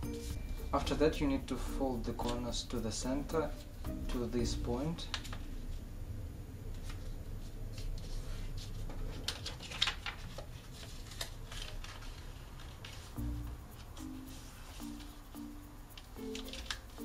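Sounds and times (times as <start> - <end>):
paper rustling and crinkling: 5.0 - 5.8, 6.7 - 15.2, 16.0 - 17.0.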